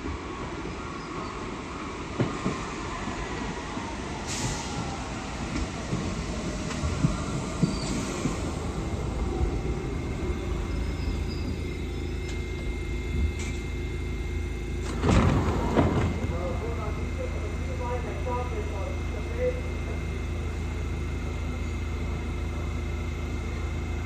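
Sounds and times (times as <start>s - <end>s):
train wheels rumbling on rails: 2.1s - 13.7s
falling whine: 2.6s - 24.0s.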